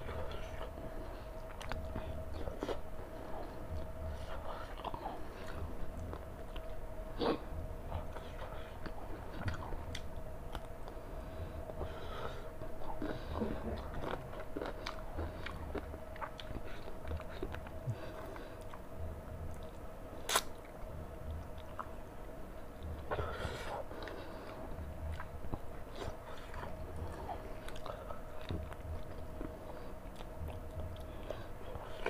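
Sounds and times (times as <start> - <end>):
faint steady hum: 0.0 - 32.0
person chewing food: 0.0 - 32.0.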